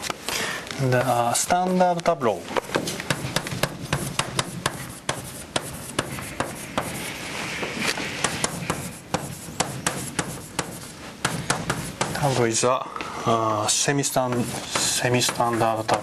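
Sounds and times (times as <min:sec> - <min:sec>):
chalk tapping on blackboard: 0:01.0 - 0:12.6, 0:13.9 - 0:16.0
chalk scratching on blackboard: 0:03.0 - 0:12.6, 0:13.7 - 0:16.0.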